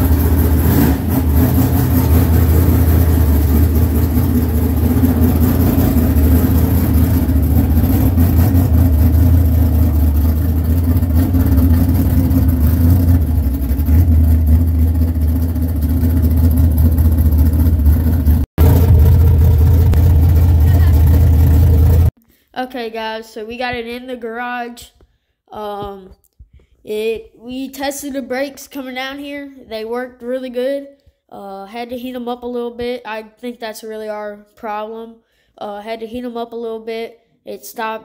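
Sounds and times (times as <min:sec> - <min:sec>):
race car engine running at low speed: 0:00.0 - 0:22.1.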